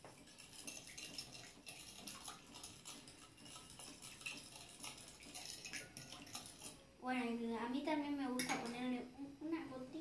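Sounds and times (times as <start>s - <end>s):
fork whisking in glass bowl: 0.0s - 6.9s.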